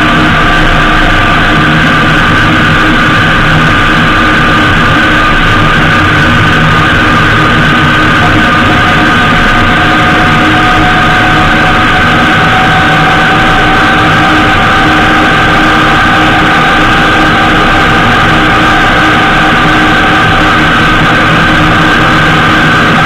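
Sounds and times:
motorcycle engine running: 0.0s - 23.0s
steady high whine: 0.0s - 23.0s
wind and road noise: 0.0s - 23.0s.

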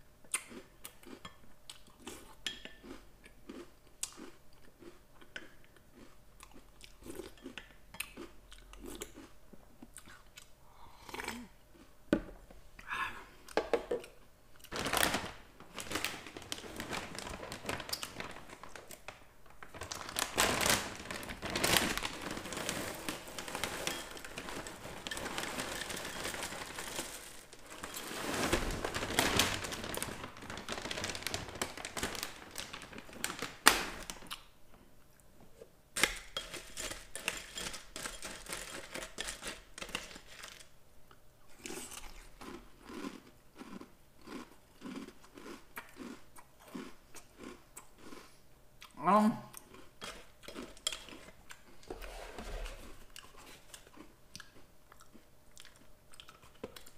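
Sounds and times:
plastic bag crinkling: 14.7s - 34.4s, 36.0s - 40.7s
dry cereal rattling into bowl: 14.8s - 33.6s, 36.3s - 40.7s.

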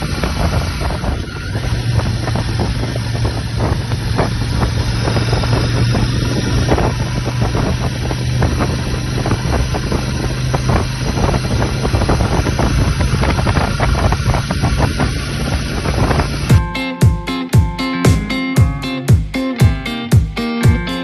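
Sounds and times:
wind on microphone: 0.0s - 16.6s
motorcycle engine running: 0.0s - 21.0s
guitar music: 16.5s - 21.0s.

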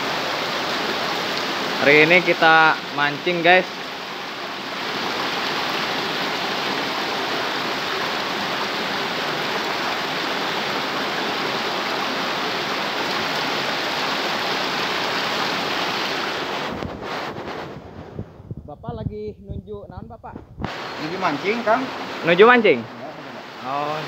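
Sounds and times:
stream flowing over stones: 0.0s - 17.5s, 20.7s - 24.0s.

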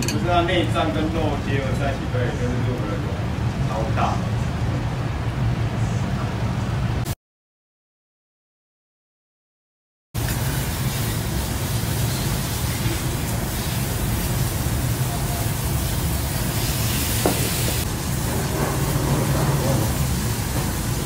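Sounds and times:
grill hiss: 10.2s - 21.0s.

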